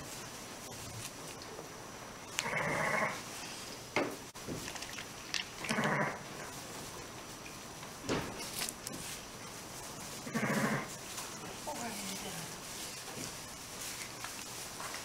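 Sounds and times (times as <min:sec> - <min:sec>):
sheep bleating: 0:10.2 - 0:10.9.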